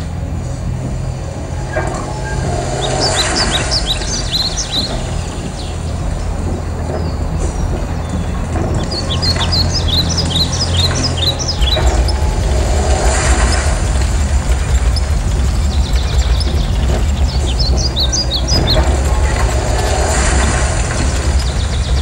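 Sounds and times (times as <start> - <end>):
birds chirping: 0.0 - 22.0
tank engine rumble: 0.0 - 22.0.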